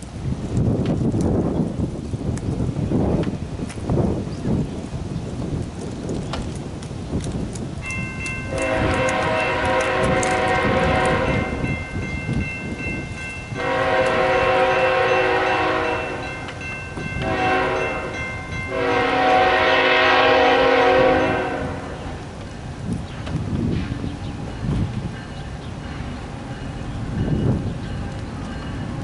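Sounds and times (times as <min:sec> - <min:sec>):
locomotive air horn: 0:08.5 - 0:11.6, 0:13.5 - 0:16.3, 0:17.2 - 0:22.2.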